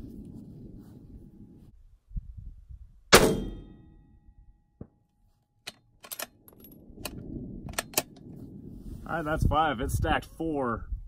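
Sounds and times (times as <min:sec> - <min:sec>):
rifle shot: 0:03.1 - 0:03.8
rifle handling clicks: 0:05.7 - 0:06.4, 0:07.0 - 0:08.3.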